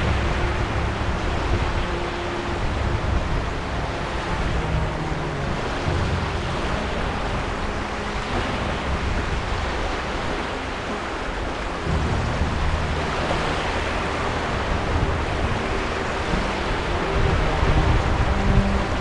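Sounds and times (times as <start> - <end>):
waves washing on shore: 0.0 - 19.0.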